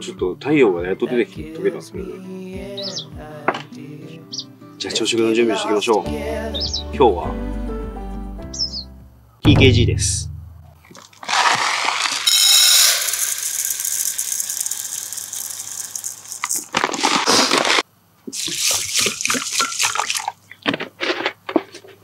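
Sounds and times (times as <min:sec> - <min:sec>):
water pouring over rice: 0:11.0 - 0:17.8, 0:18.4 - 0:20.4
rice swished in water: 0:11.2 - 0:12.3.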